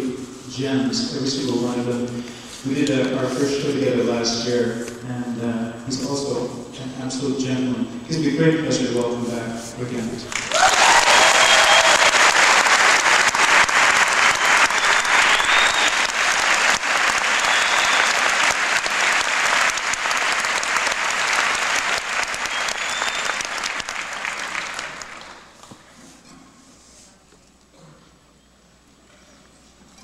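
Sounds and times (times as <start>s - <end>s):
audience applauding: 10.3s - 25.6s.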